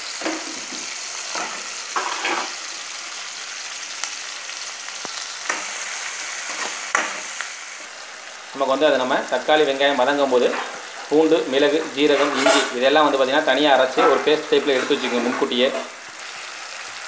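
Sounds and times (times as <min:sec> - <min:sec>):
vegetables sizzling in hot oil: 0:00.0 - 0:17.0
metal spoon scraping: 0:01.3 - 0:02.6, 0:12.0 - 0:12.8, 0:14.0 - 0:15.9.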